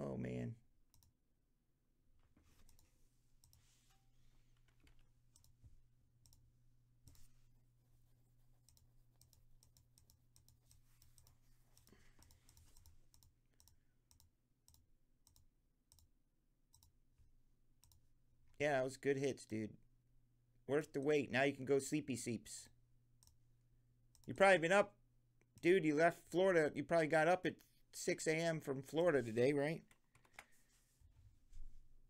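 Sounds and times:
computer mouse clicks: 0:00.9 - 0:01.1, 0:02.5 - 0:03.7, 0:04.5 - 0:05.6, 0:06.2 - 0:06.4, 0:07.0 - 0:07.3, 0:08.6 - 0:16.1, 0:16.7 - 0:16.9, 0:29.9 - 0:30.5.

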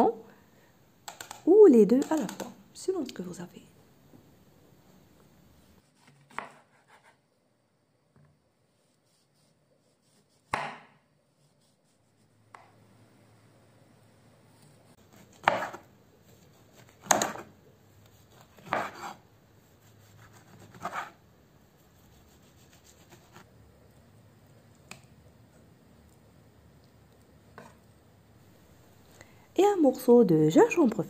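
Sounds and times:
knife chopping on wooden board: 0:06.0 - 0:07.1, 0:10.4 - 0:11.0, 0:15.1 - 0:15.9, 0:16.7 - 0:17.5, 0:18.3 - 0:19.2.

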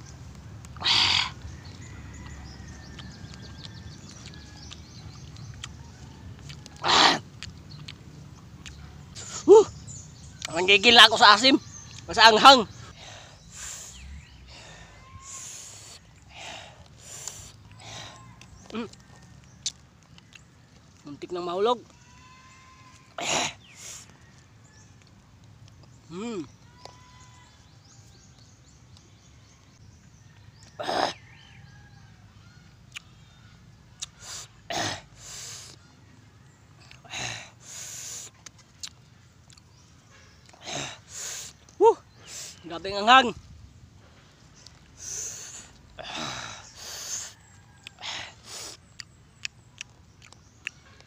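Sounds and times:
man's breathy mouth noises: 0:12.8 - 0:18.6, 0:44.4 - 0:49.4
mouth clicks and smacks: 0:38.1 - 0:39.8, 0:47.8 - 0:51.0
man's hissing breaths: 0:45.0 - 0:47.4.

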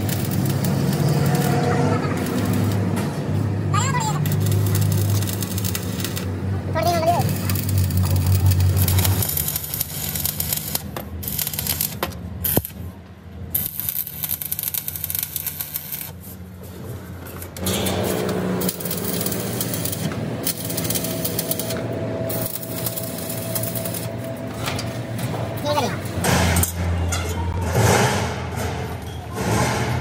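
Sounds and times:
welding arc crackling: 0:00.0 - 0:16.4, 0:17.4 - 0:24.6.

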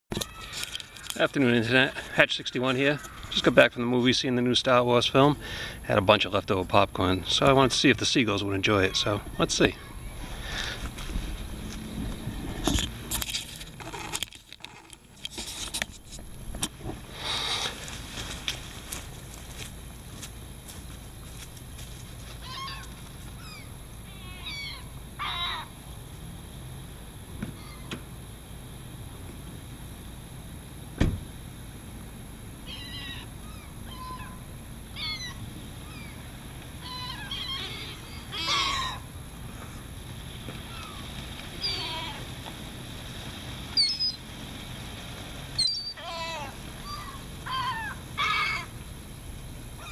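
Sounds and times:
rustling and scraping: 0:00.2 - 0:02.1, 0:10.1 - 0:23.3
seagulls calling: 0:02.6 - 0:03.7, 0:07.0 - 0:10.9, 0:22.3 - 0:25.7, 0:27.6 - 0:27.9, 0:32.6 - 0:39.8, 0:40.4 - 0:42.5, 0:43.7 - 0:44.3, 0:45.4 - 0:48.8.

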